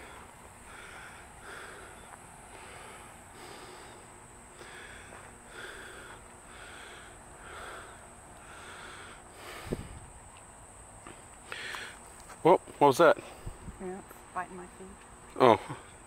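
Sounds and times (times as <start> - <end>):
person breathing heavily: 0.0 - 10.1, 11.0 - 12.1
high insect hum: 0.0 - 16.0.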